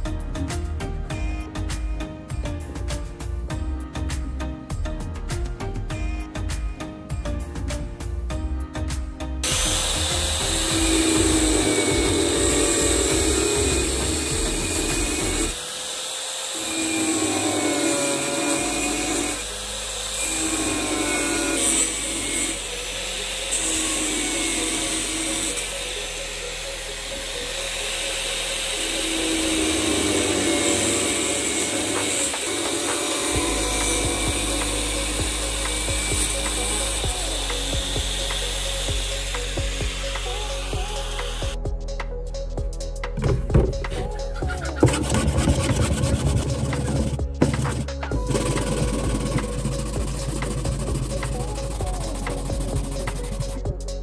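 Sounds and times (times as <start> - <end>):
background music: 0.0 - 15.7, 16.5 - 54.0
power tool running: 9.4 - 41.6, 43.2 - 53.6.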